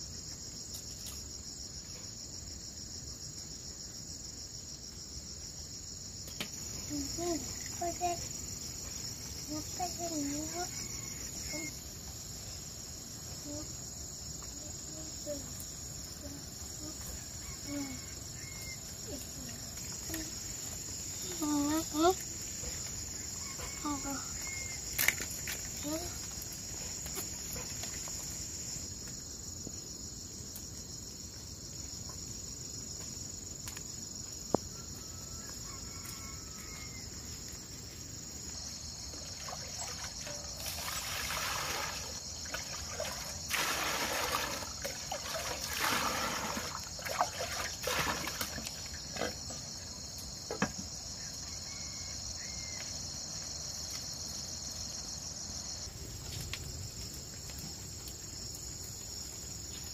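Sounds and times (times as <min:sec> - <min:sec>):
insect chorus: 0:00.0 - 0:59.9
water splashing and trickling: 0:39.0 - 0:49.8.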